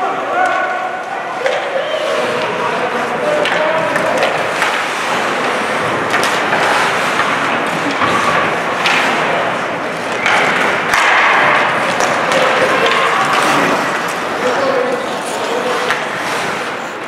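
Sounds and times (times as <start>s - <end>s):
skate blades scraping ice: 1.4s - 17.0s
sticks and puck knocking boards: 2.4s - 14.4s.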